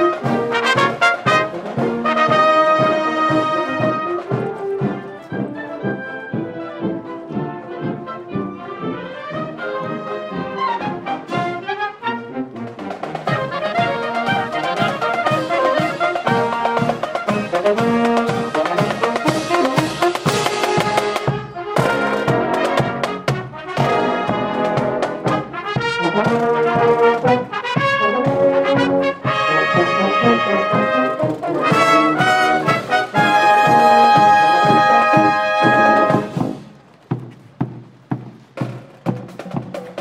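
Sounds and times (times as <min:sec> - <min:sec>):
marching band playing brass march: 0:00.0 - 0:40.0
soft regular taps: 0:36.4 - 0:40.0.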